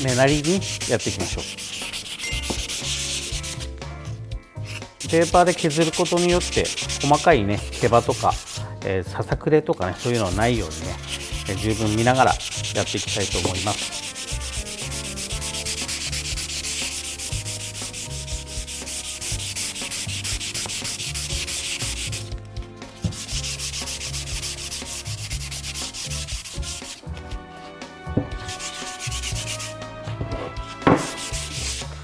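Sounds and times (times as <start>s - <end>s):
sandpaper rubbing on wood: 0.0s - 3.7s, 4.6s - 8.6s, 9.8s - 22.3s, 22.9s - 27.1s, 28.3s - 29.9s, 30.6s - 32.0s.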